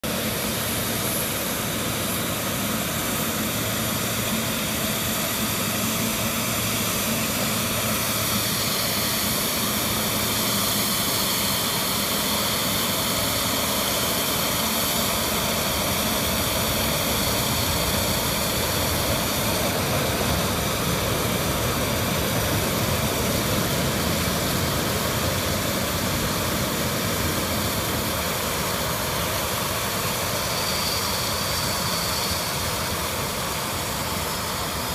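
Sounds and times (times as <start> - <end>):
jet engines whining: 0.0 - 34.9.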